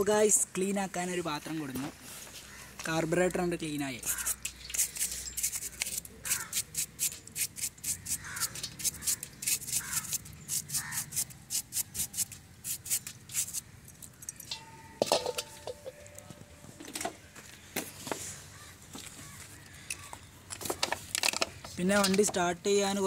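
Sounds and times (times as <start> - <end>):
toothbrush scrubbing metal: 4.0 - 13.6
metallic clink: 14.2 - 16.3.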